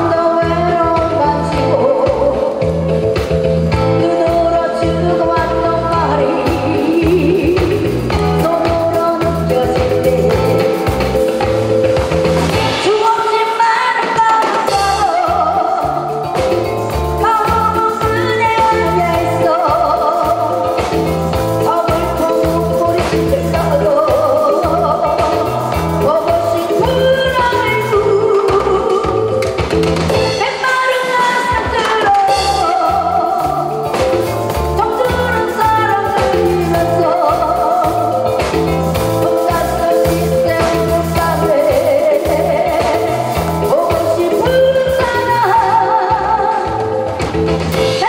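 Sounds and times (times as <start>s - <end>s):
woman singing into a microphone: 0.0s - 3.1s, 3.7s - 11.5s, 12.5s - 48.0s
drum and bass beat: 0.0s - 48.0s.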